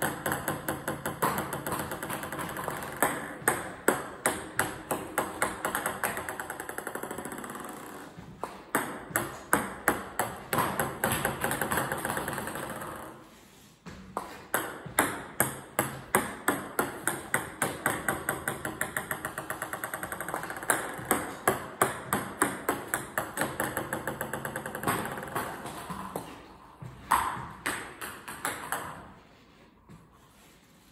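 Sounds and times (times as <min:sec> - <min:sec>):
table tennis ball bouncing: 0:00.0 - 0:13.3, 0:13.9 - 0:30.0.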